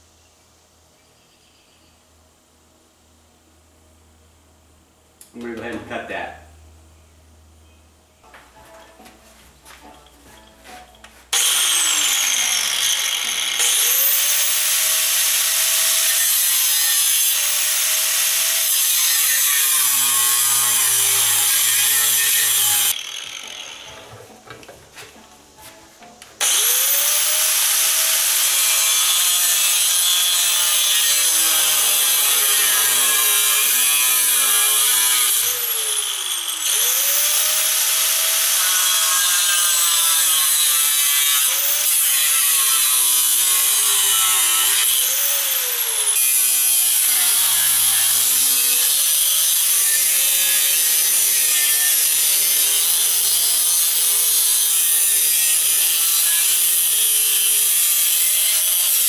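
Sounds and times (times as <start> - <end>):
angle grinder cutting steel: 10.4 - 24.4, 26.4 - 59.0.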